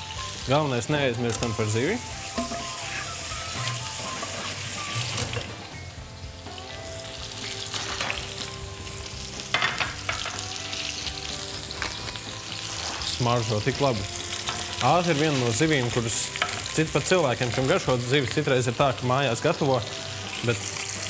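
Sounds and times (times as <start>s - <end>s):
fish sizzling in hot oil: 0.0s - 21.0s
pans clanking: 1.3s - 5.7s, 9.5s - 10.4s.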